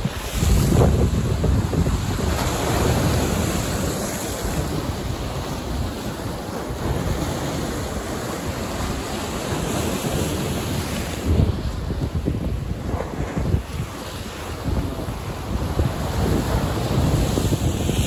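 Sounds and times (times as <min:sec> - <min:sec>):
sea waves breaking on rocks: 0:00.0 - 0:18.0
wind on microphone: 0:00.0 - 0:18.0.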